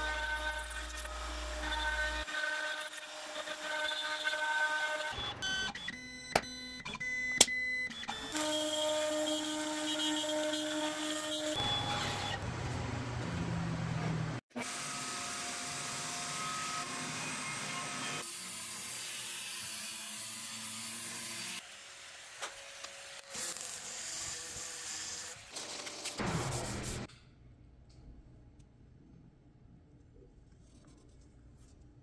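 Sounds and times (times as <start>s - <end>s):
table router cutting wood: 14.6s - 21.6s.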